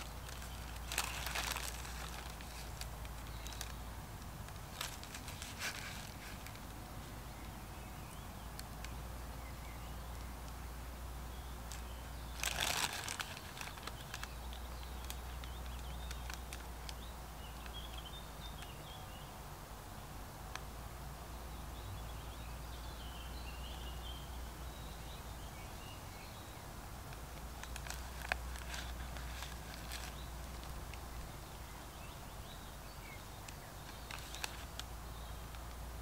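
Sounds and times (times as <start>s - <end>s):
rustling crunch: 0.0s - 7.1s, 11.7s - 16.7s, 27.4s - 31.3s, 33.5s - 34.9s
faint birdsong: 0.0s - 36.0s.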